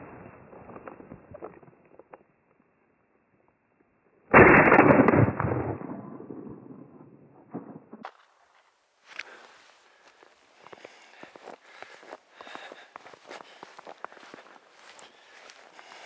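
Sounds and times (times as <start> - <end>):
shotgun shot: 4.3 - 8.1.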